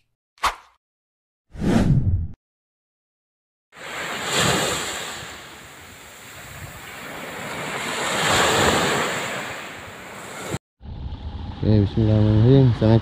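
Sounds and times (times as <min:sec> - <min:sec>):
small waves washing on sand: 0:03.8 - 0:10.6.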